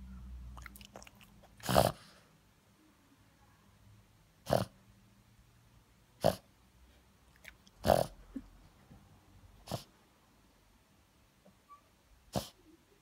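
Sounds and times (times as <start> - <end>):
dog snorting: 0.6 - 2.2, 4.4 - 4.7, 6.2 - 6.5, 7.4 - 8.4, 9.6 - 9.9, 12.3 - 12.6.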